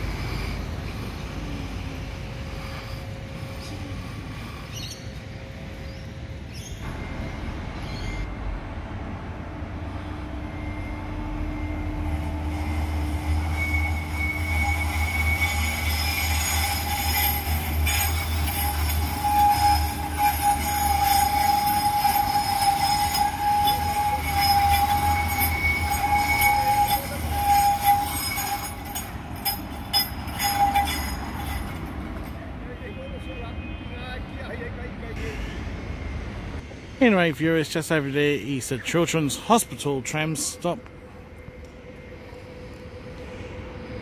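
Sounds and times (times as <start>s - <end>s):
wheels squealing on curved track: 0.0s - 5.6s, 10.5s - 32.4s
tram rumbling: 0.0s - 44.0s.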